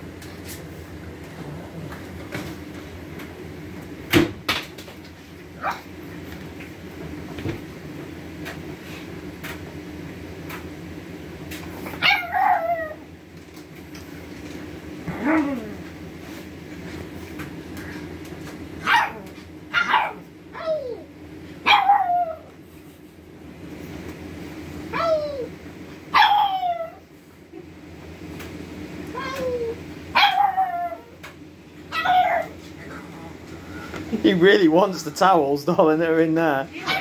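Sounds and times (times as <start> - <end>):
puppy yelping barks: 11.8 - 13.0, 18.8 - 21.0, 21.6 - 22.5, 26.1 - 27.0, 30.1 - 31.1, 31.9 - 32.6, 36.8 - 37.0.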